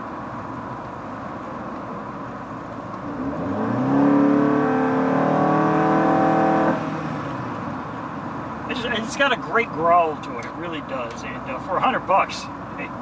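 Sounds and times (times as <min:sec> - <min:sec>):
road noise inside car: 0:00.0 - 0:13.0
car engine accelerating growl: 0:03.0 - 0:07.4.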